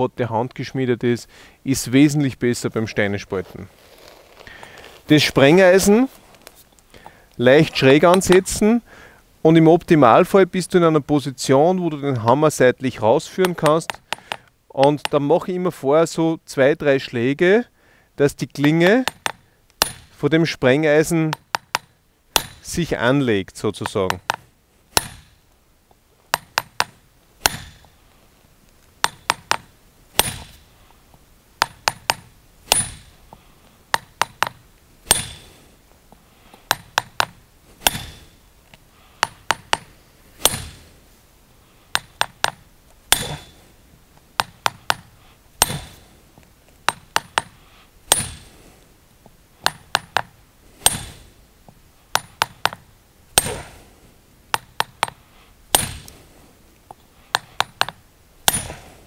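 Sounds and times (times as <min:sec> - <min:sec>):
hammer striking steel: 0:18.6 - 0:20.1, 0:21.3 - 0:22.7, 0:25.0 - 0:25.4, 0:26.3 - 0:27.9, 0:29.0 - 0:30.6, 0:31.6 - 0:33.1, 0:33.9 - 0:35.5, 0:36.7 - 0:38.3, 0:39.2 - 0:40.8, 0:42.0 - 0:43.6, 0:44.4 - 0:46.0, 0:46.9 - 0:48.5, 0:49.6 - 0:51.2, 0:53.4 - 0:53.8, 0:54.6 - 0:56.1, 0:57.4 - 0:58.8.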